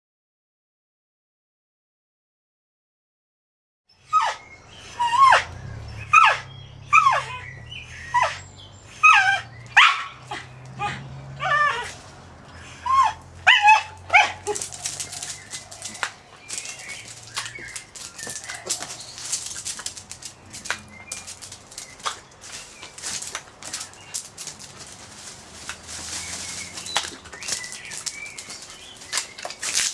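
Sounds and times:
dog barking in high yips: 4.1s - 4.4s, 5.0s - 7.5s, 8.1s - 8.4s, 9.0s - 11.9s, 12.8s - 15.3s
rustling: 14.0s - 29.9s.

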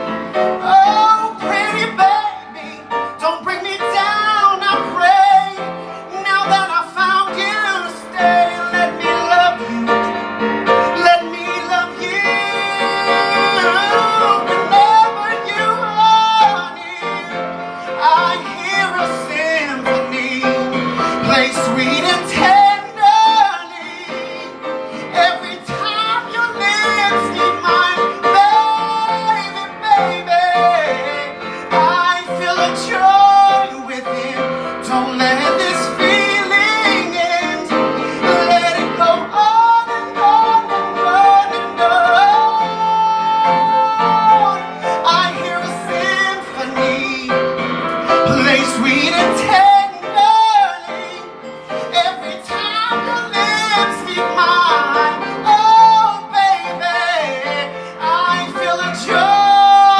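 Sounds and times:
man singing in a high voice: 0.0s - 59.9s
piano accompaniment: 0.0s - 59.9s.

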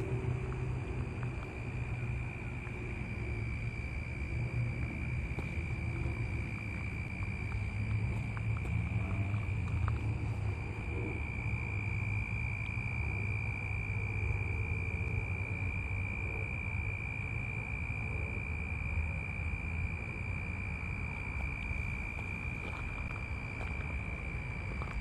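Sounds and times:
low rumble: 0.0s - 18.4s
crickets trilling: 0.0s - 25.0s.

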